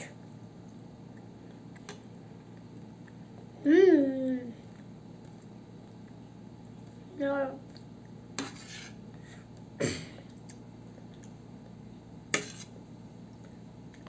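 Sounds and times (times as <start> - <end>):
metal spoon scraping a plate: 8.4 - 9.0, 12.3 - 12.7.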